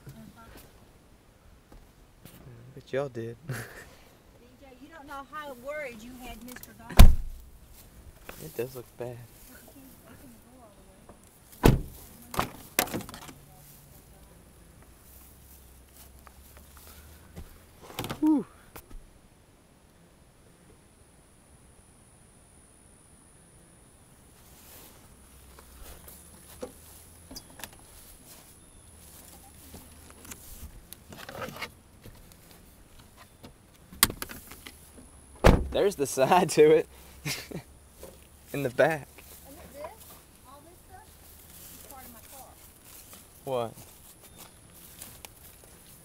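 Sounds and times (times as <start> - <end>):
car door knocks swinging open: 7.0 - 7.3, 11.6 - 12.5, 35.4 - 35.8
car door latch click: 35.4 - 35.7.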